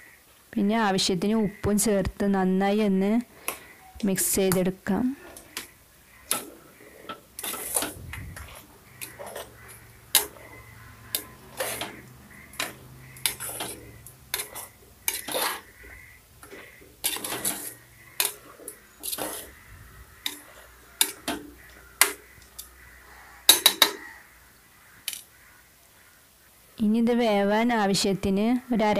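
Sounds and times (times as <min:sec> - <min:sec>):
chicken being mixed by hand: 0:05.2 - 0:23.2
steel spoon mixing: 0:07.4 - 0:22.7.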